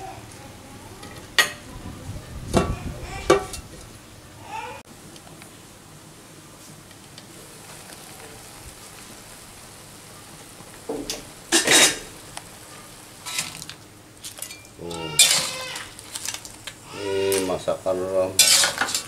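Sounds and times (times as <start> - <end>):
wok simmering with hiss: 0.0 - 19.0
metal spatula scraping wok: 14.4 - 16.3, 18.4 - 19.0.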